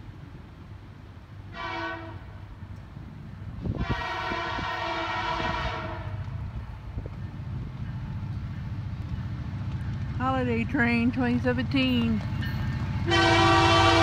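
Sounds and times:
low rumble of train: 0.0s - 14.0s
locomotive air horn blasts: 1.5s - 2.3s, 3.7s - 6.2s, 13.0s - 14.0s.

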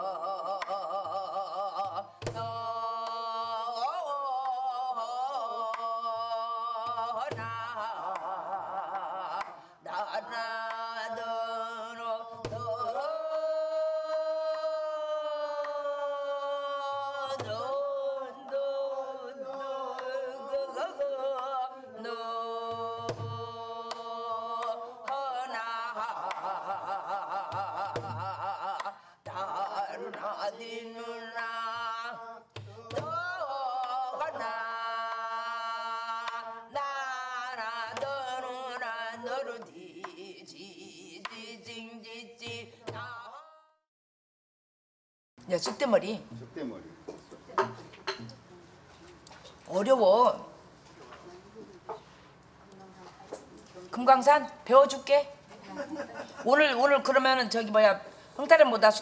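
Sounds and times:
person singing wordless melody: 0.0s - 43.8s.

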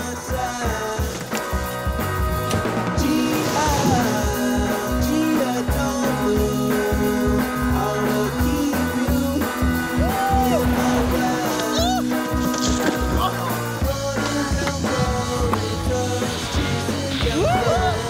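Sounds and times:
song with guitar and singing: 0.0s - 18.0s.

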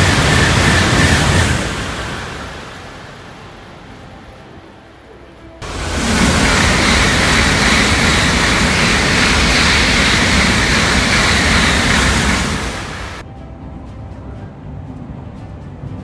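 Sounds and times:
train rushing past: 0.0s - 5.0s, 5.6s - 13.3s.

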